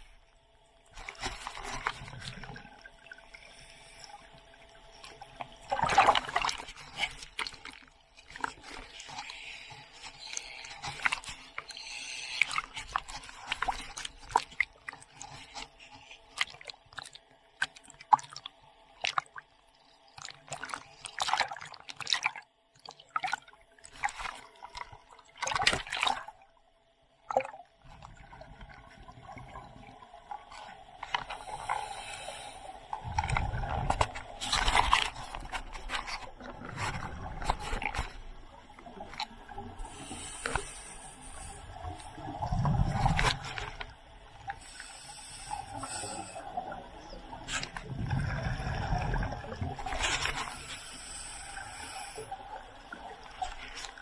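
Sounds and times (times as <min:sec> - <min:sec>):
sea water splashing: 0:00.0 - 0:26.5, 0:27.2 - 0:54.0.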